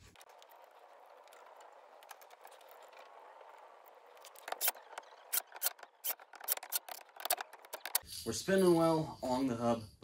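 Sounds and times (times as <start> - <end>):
drill and screws clicking on metal: 4.2 - 8.1.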